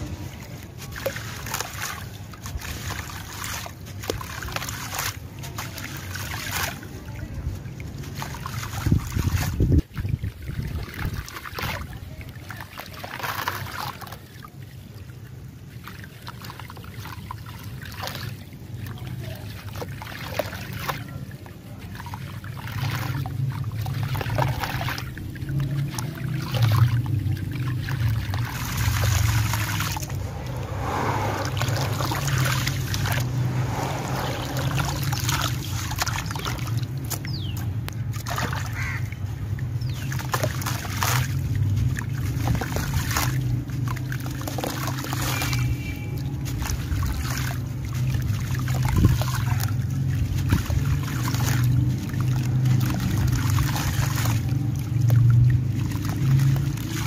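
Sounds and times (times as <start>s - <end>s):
sand trickling into water: 0.0s - 57.0s
low hum: 28.8s - 36.1s.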